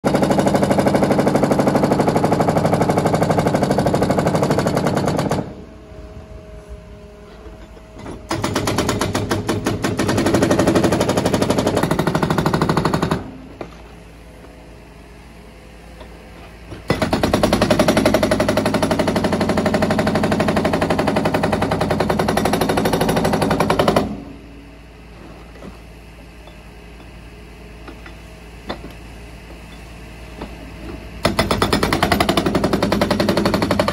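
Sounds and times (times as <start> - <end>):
hydraulic breaker pounding concrete: 0.0 - 5.6, 8.0 - 14.0, 16.0 - 24.4, 30.3 - 33.9
excavator engine running: 0.0 - 33.9.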